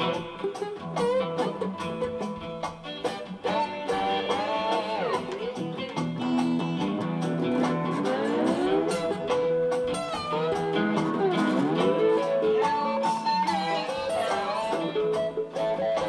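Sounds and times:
acoustic guitar: 0.0 - 16.0
slide guitar gliding: 0.0 - 16.0.

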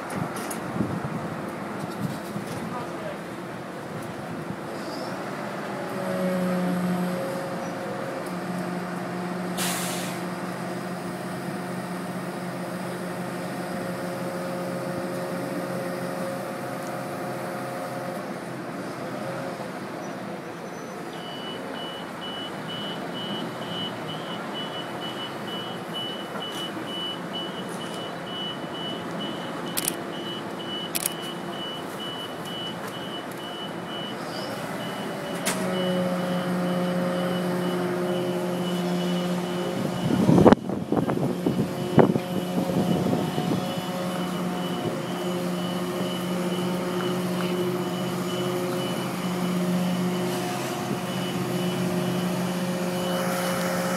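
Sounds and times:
diesel truck engine humming: 5.4 - 53.9
reversing alarm beeping: 21.1 - 53.9.

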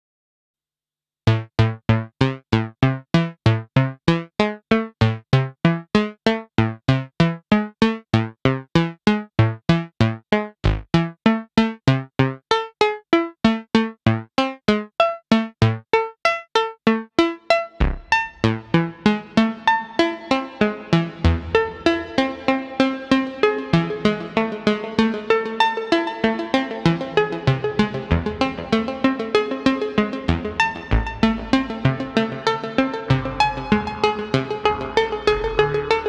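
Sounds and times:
synthesizer plucked note sequence: 10.6 - 11.7, 16.6 - 36.0.

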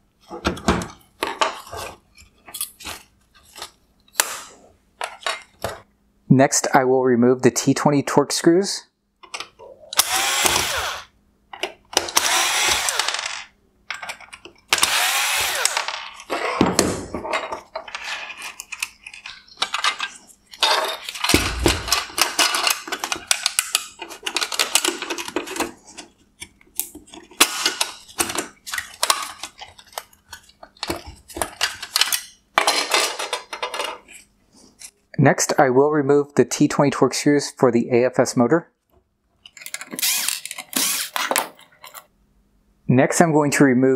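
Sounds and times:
electric screwdriver running: 10.0 - 11.1, 12.1 - 13.2, 14.8 - 15.8, 40.0 - 41.2
plastic clicks and rattles: 17.4 - 34.1
thump: 21.3 - 22.2.

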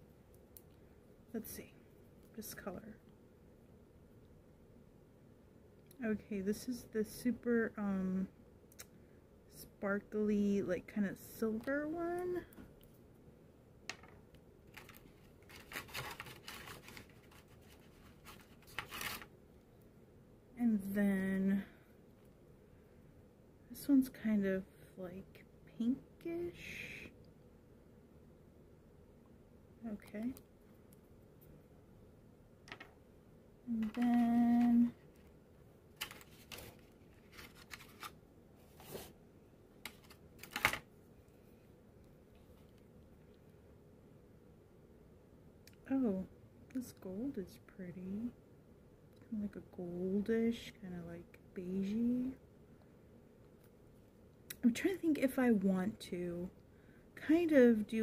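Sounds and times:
scratchy rustling and scraping: 14.7 - 19.3, 36.0 - 39.2.

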